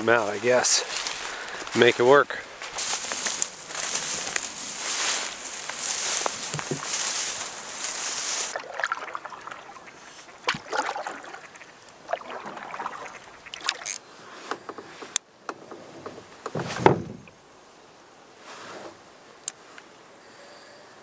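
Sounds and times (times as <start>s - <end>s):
steady hiss: 0.0s - 8.6s
paddle splashing through water: 2.8s - 14.0s
water dripping: 5.5s - 14.0s
knocks on canoe hull: 16.5s - 17.3s.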